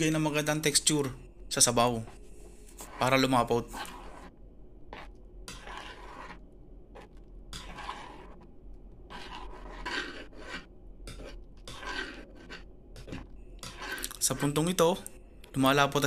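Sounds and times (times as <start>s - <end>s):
spoon scraping a pot: 2.0s - 4.3s, 4.9s - 8.5s, 9.1s - 15.0s.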